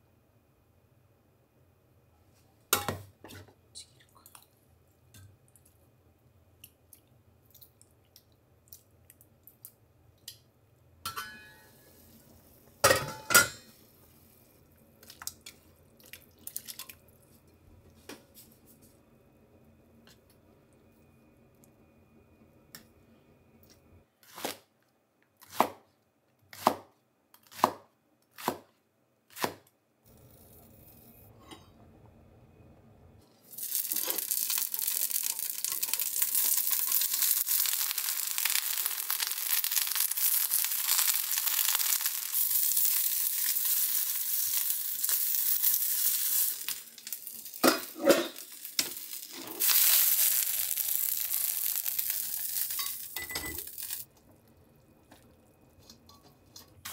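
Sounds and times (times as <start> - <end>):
onion sizzling in hot oil: 33.4 - 54.1.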